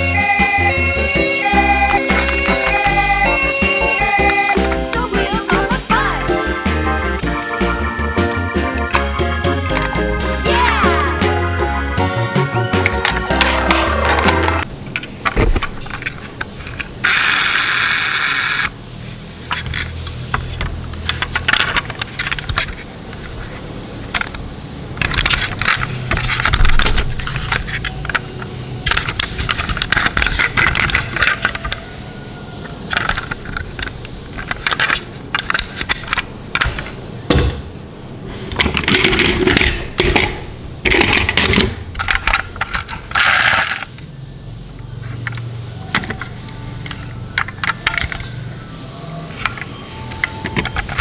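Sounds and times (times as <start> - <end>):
toy cars clicking and clattering: 12.8 - 18.7, 19.5 - 31.8, 32.6 - 37.0, 38.5 - 44.1, 45.1 - 48.5, 49.3 - 51.0.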